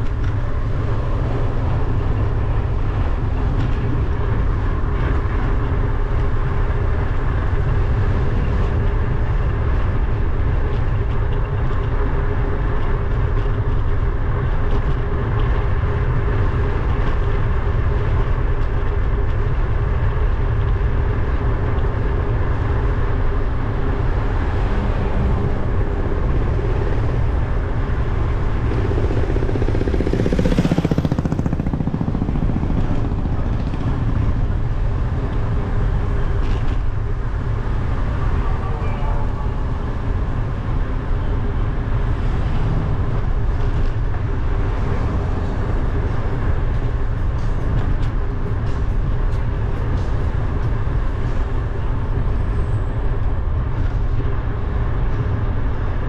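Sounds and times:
bicycle road noise: 0:00.0 - 0:56.0
wind rumble: 0:00.0 - 0:56.0
vehicle passing: 0:23.6 - 0:36.2, 0:39.6 - 0:46.9.

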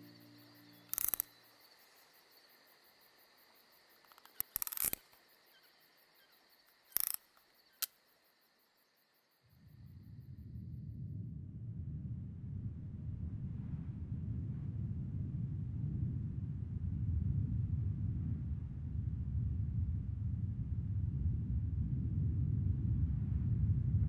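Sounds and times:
faint high chirring: 0:00.0 - 0:02.5
short sharp clicks: 0:00.9 - 0:01.3
low rumble: 0:10.2 - 0:24.0.

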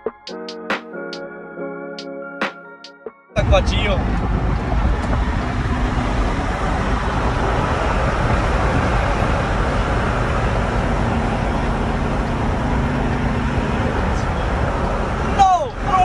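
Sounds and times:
road rumble: 0:03.4 - 0:16.0.

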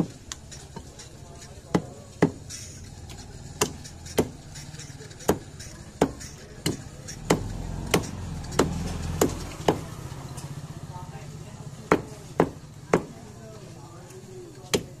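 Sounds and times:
cleaver chopping on wooden block: 0:01.7 - 0:02.4, 0:03.6 - 0:04.4, 0:05.2 - 0:09.9, 0:11.9 - 0:13.2, 0:14.7 - 0:14.9.

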